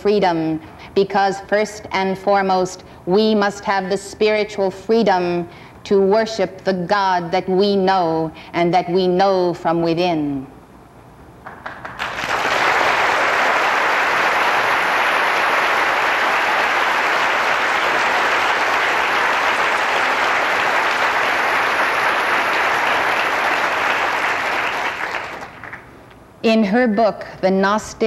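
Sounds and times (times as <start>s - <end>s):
audience applause: 11.5s - 25.9s.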